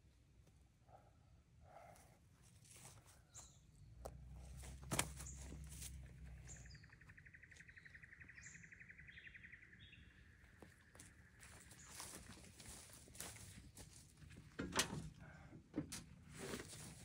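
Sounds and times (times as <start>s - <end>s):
high bird chirps: 6.4s - 12.2s.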